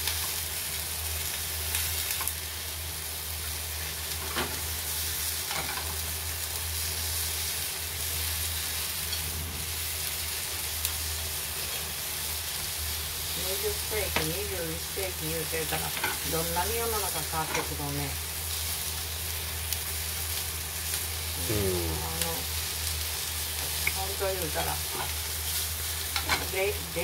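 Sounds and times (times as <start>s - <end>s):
food sizzling in a frying pan: 0.0s - 27.0s.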